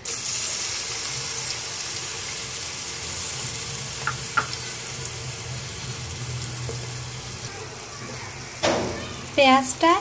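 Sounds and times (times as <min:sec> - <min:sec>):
onion sizzling in hot oil: 0:00.0 - 0:10.0.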